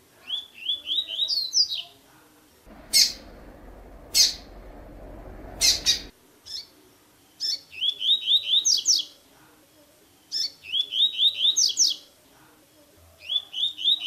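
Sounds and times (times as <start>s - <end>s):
background hiss: 2.0s - 10.8s
bird singing: 2.7s - 6.1s.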